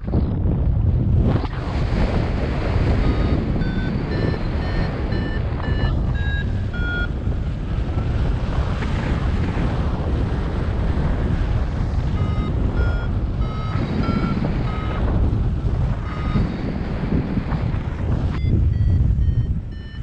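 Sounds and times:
wind rushing over microphone: 0.0 - 20.0
variometer beeps: 2.7 - 8.6, 12.0 - 20.0.

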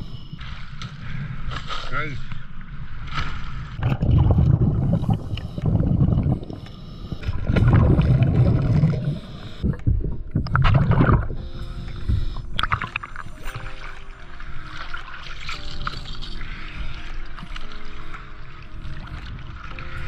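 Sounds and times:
soft background music: 2.5 - 20.0
regulator exhaust bubbles underwater: 3.8 - 11.4.

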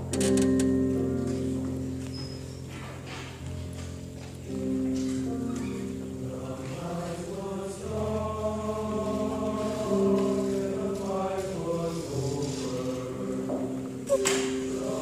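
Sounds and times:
male chorus singing: 6.1 - 15.0.

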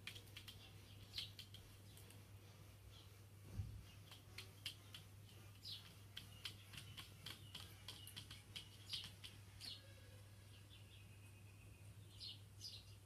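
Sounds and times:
kitten claws tapping: 0.0 - 2.2, 4.0 - 9.6.

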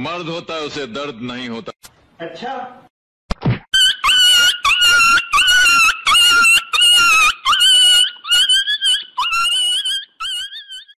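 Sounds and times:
high-pitched squealing cries: 3.8 - 11.0.

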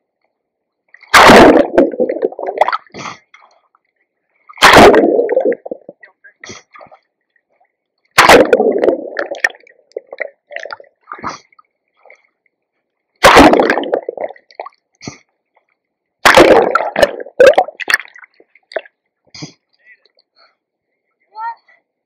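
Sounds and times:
water drips and gurgles: 0.8 - 20.3
swimming strokes splashing: 8.2 - 11.4.

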